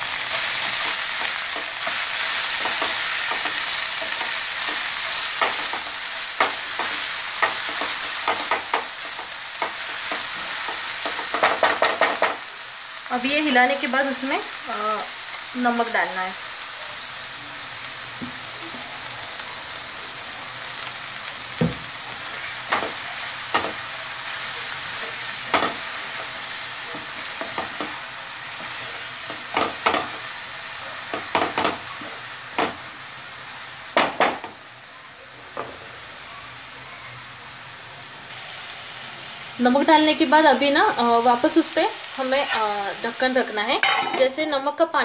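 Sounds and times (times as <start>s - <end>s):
leaves sizzling in oil: 0.0s - 45.0s
spatula scraping and knocking pan: 0.3s - 12.4s.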